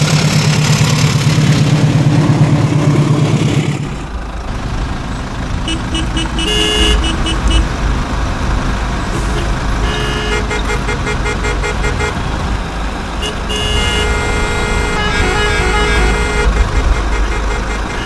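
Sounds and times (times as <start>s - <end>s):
low engine rumble: 0.0s - 18.0s
car horns honking: 5.5s - 18.0s.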